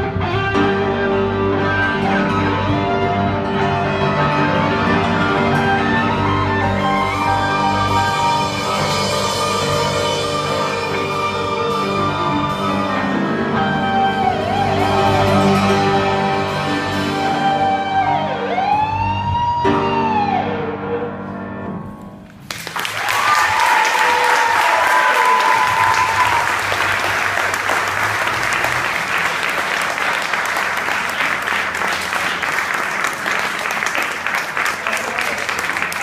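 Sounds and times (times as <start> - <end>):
audience applause and cheering: 22.4 - 36.0.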